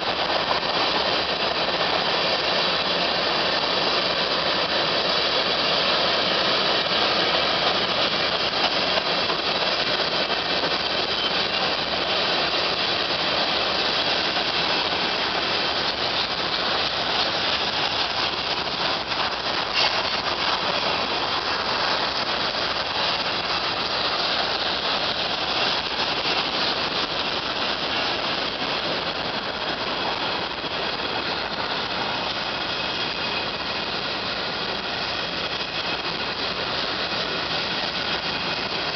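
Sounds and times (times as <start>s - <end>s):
train wheels rumbling on rail: 0.0s - 38.9s.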